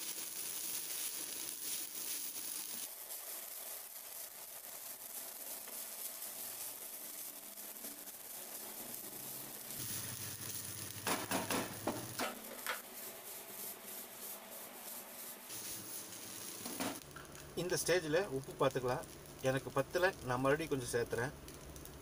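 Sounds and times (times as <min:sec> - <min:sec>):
sharp knocks against pan: 0:11.0 - 0:12.8.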